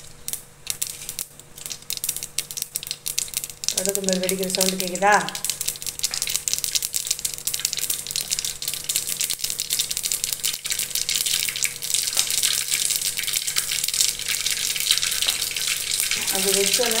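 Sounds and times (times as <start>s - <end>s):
seeds popping and sizzling in oil: 0.0s - 17.0s.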